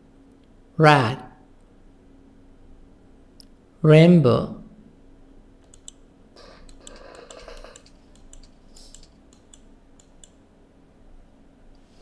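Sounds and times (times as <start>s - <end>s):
low steady hum: 0.0s - 12.0s
keyboard and mouse clicks: 5.6s - 10.4s.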